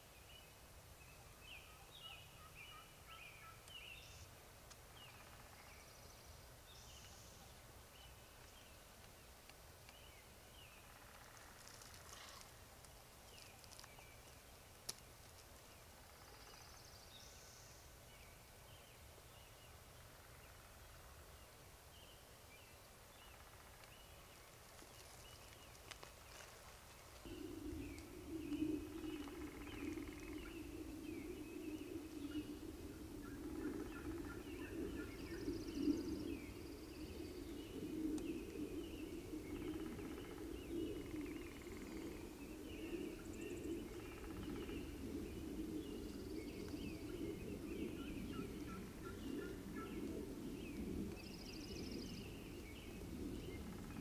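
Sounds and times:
small birds chirping: 0.0s - 54.0s
steady low hum: 14.0s - 54.0s.

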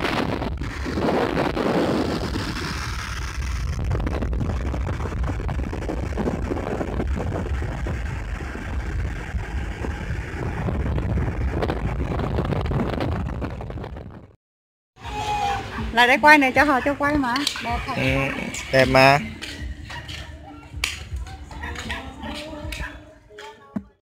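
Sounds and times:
road noise: 0.0s - 14.2s, 15.0s - 23.6s
wind rumbling on microphone: 0.0s - 14.4s.

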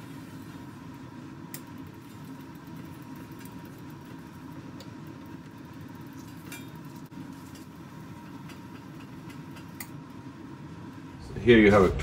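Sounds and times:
low mechanical hum: 0.0s - 12.0s
thin steady whine: 0.0s - 12.0s.

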